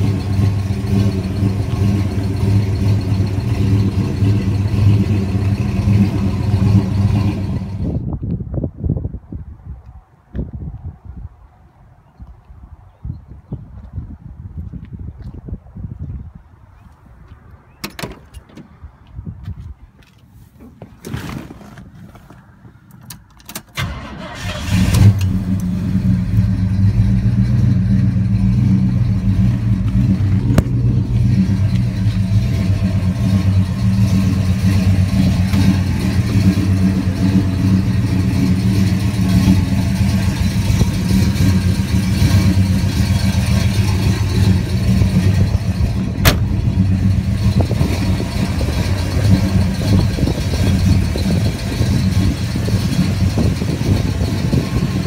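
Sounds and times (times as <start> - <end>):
car engine starting and idling: 0.0 - 8.0, 23.0 - 55.0.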